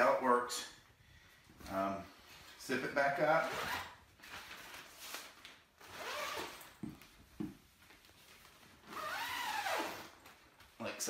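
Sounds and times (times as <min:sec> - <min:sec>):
zipper rasping: 0:05.8 - 0:06.8, 0:08.8 - 0:10.2.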